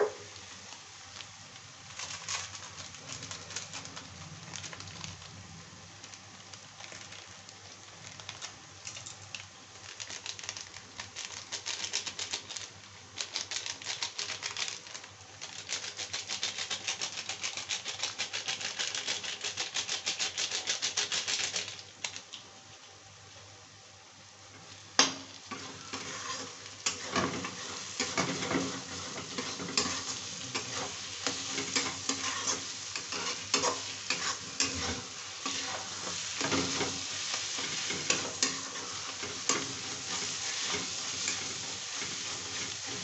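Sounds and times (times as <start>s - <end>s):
pan sizzling: 0.0s - 14.2s, 24.2s - 43.0s.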